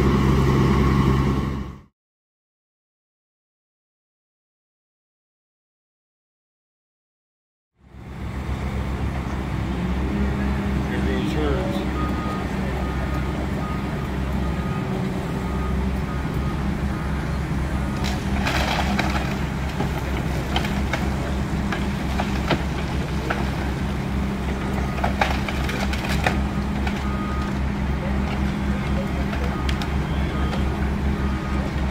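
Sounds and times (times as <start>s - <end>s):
excavator diesel engine running: 0.0s - 1.9s, 7.8s - 31.9s
debris breaking: 17.8s - 30.7s.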